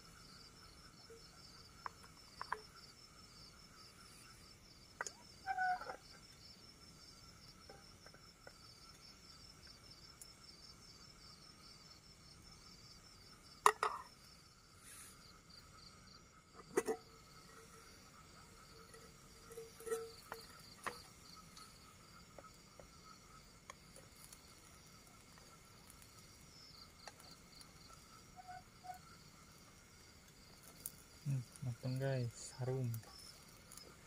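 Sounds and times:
crickets chirping: 0.0s - 34.0s
spoon and lid clanking on pot: 13.7s - 14.0s, 16.6s - 17.0s.

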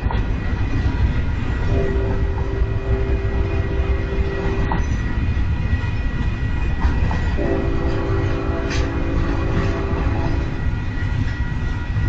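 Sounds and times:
train wheels rumbling on rails: 0.0s - 12.0s
train horn blasts: 1.6s - 5.0s, 7.3s - 10.7s.

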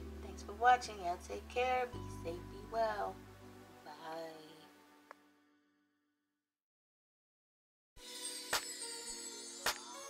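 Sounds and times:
faint background music: 0.0s - 5.4s.

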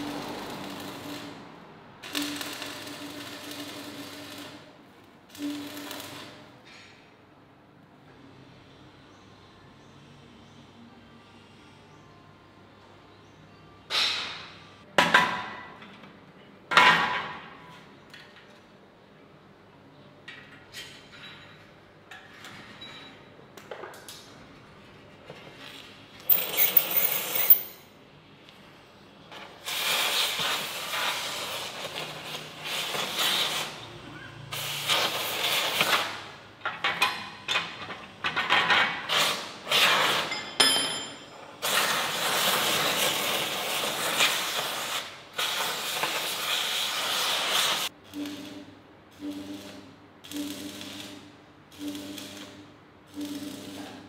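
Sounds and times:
steel parts clinking: 26.3s - 27.9s.

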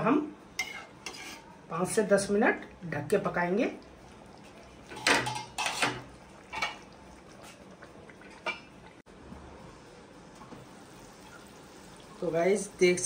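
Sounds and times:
metal cookware clanking: 0.6s - 1.5s, 4.8s - 6.9s
lid clinking: 4.9s - 6.8s.

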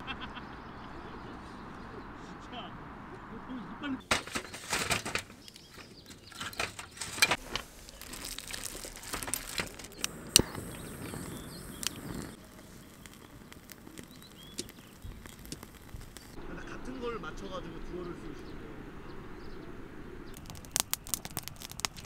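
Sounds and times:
crinkling and rustling packaging: 4.0s - 16.4s, 20.4s - 22.0s
sharp clicks: 9.2s - 16.4s.

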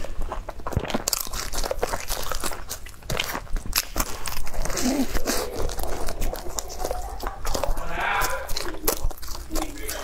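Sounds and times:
crunchy bread roll chewing: 0.0s - 10.0s.

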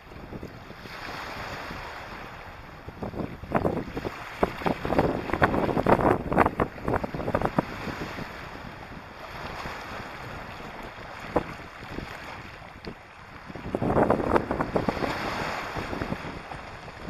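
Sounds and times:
surf: 0.0s - 17.0s
wind on microphone: 0.0s - 17.0s.

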